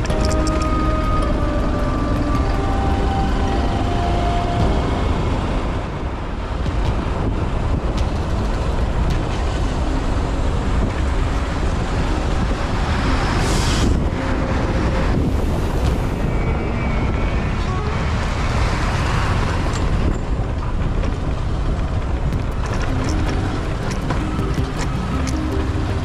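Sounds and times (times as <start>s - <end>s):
background music: 0.0s - 16.8s, 21.9s - 26.0s
low road rumble: 0.0s - 26.0s
wind rushing over microphone: 0.0s - 26.0s.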